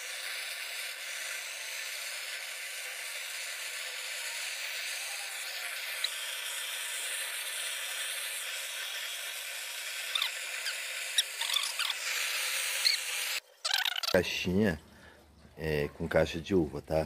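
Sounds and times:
gas torch hissing: 0.0s - 13.4s.

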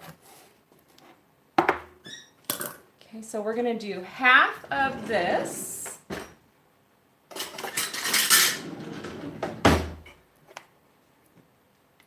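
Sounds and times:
utensils and dishes clattering: 7.3s - 9.4s.

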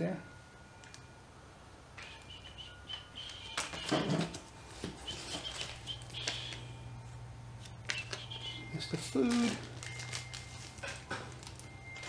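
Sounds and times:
plastic packaging crinkling: 3.2s - 6.7s, 7.6s - 12.0s.

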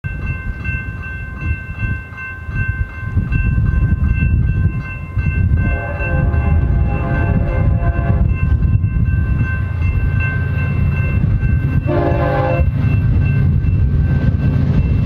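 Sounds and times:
crossing warning bell ringing: 0.0s - 15.0s
locomotive air horn: 5.6s - 8.4s, 11.9s - 12.7s.

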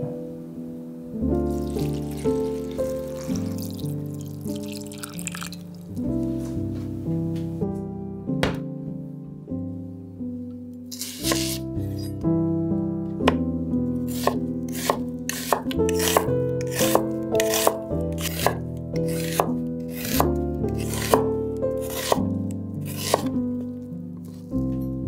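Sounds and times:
soft background music: 0.0s - 25.0s
knife slicing onion on wooden board: 10.9s - 12.1s, 14.0s - 23.4s.

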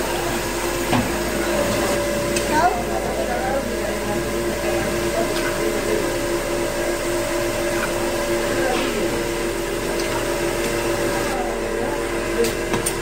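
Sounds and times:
low hum: 0.0s - 13.0s
chicken deep-frying in oil: 4.2s - 13.0s.

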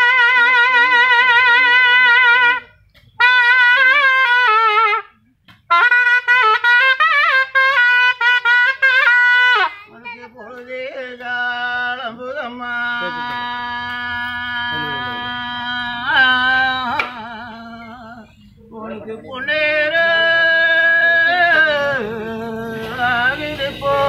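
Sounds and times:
wind instrument ornamented melody: 0.0s - 10.2s, 12.8s - 16.8s.

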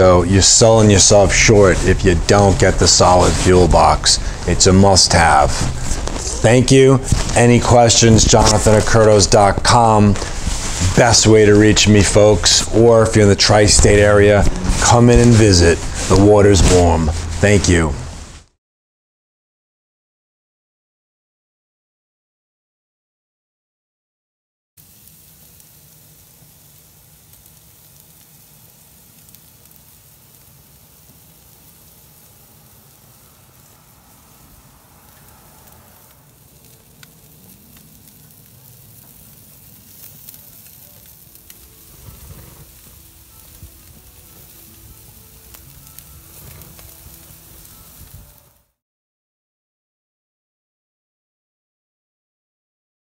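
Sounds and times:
steaks sizzling on a grill: 0.0s - 17.8s, 24.8s - 48.7s
pops and crackles: 0.7s - 17.6s, 35.2s - 48.6s.

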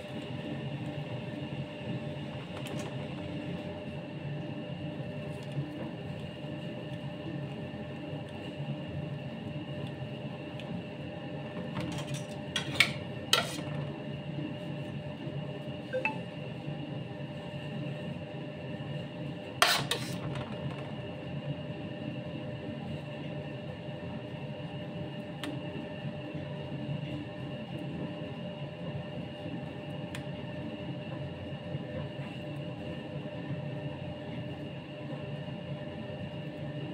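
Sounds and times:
low background hum: 0.0s - 21.8s.

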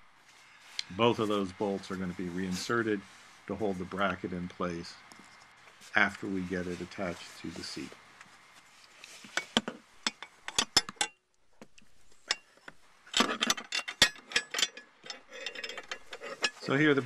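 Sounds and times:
metal bracket clinking: 13.2s - 17.0s.

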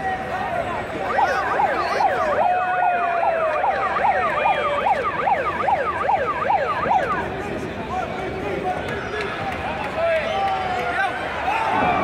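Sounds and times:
siren-like noisemaker wailing: 0.8s - 7.4s.

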